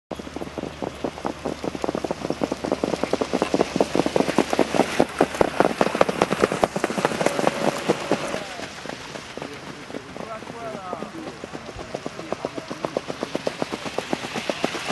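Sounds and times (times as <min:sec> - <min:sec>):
trotting hoofbeats on sand: 0:00.1 - 0:14.9.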